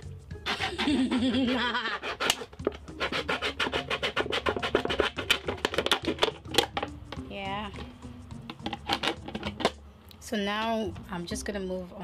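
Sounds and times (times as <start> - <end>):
knife scraping plastic bottle: 0.4 - 6.9, 8.5 - 9.8.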